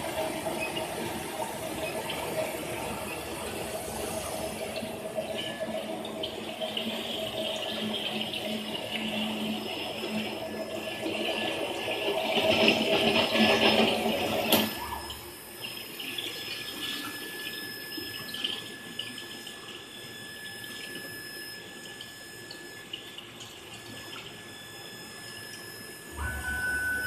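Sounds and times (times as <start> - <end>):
machine background hum: 0.0 - 27.0
water rushing through machine: 0.0 - 27.0
faint high steady tones: 24.4 - 27.0.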